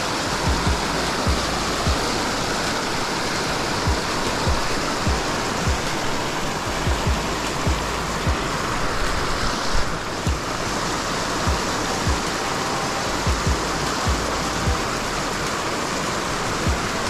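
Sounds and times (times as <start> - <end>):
background music beat: 0.0 - 17.0
water pouring from pipe: 0.0 - 17.0.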